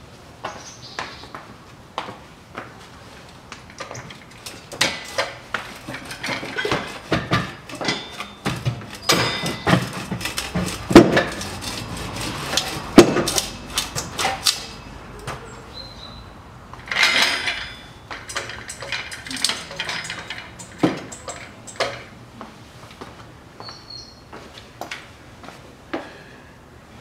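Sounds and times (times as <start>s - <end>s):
metallic clanks of exhaust pipe: 3.7s - 14.8s, 16.7s - 22.2s.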